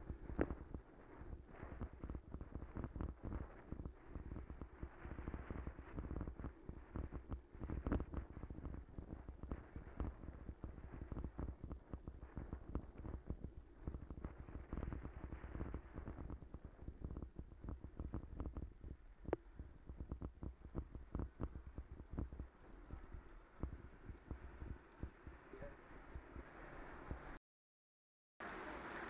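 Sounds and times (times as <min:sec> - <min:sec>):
bicycle rattling over stone setts: 0:28.4 - 0:29.0.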